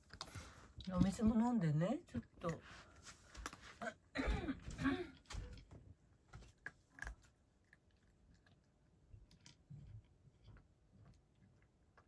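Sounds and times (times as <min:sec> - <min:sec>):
cat crunching dry food: 0:06.4 - 0:10.5.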